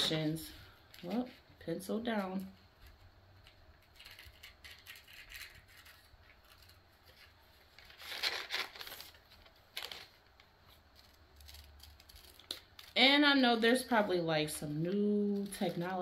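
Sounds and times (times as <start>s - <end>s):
paper rustling and crinkling: 2.1s - 13.0s.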